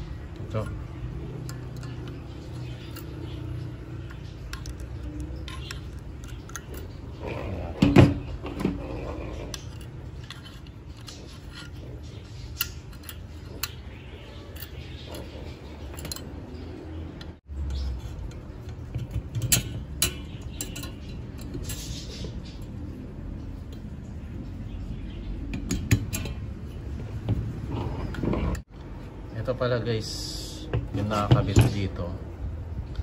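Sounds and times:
metal clicks and clinks: 0.3s - 7.2s, 9.5s - 22.2s.

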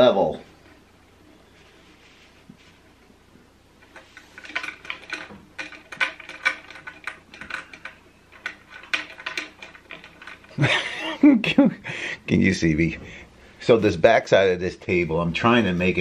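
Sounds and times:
metal bolt and nut clicking: 3.8s - 10.6s.

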